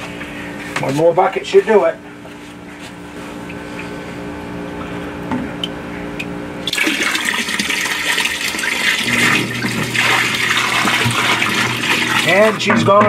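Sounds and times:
pump motor hum: 0.0 - 13.0
water pouring and splashing: 6.6 - 12.8.

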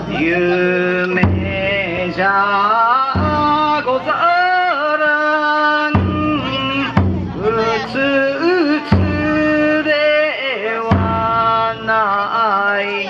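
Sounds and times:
taiko drum stroke: 0.0 - 4.6, 5.9 - 9.9, 10.9 - 11.9.

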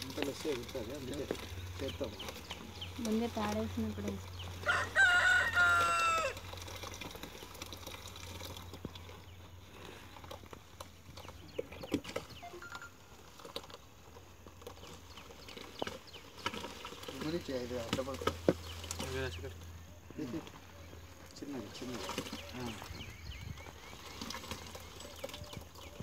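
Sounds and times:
rooster crowing: 4.6 - 6.4
rustling and small knocks: 13.2 - 19.7.

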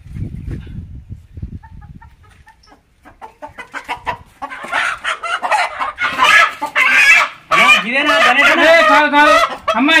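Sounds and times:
chickens clucking: 1.4 - 10.0
chickens squawking loudly: 1.6 - 10.0.

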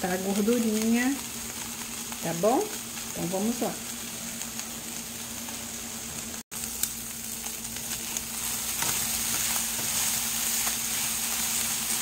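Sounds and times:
bacon sizzling in a frying pan: 0.0 - 12.0
spatula stirring in a pan: 6.6 - 12.0.

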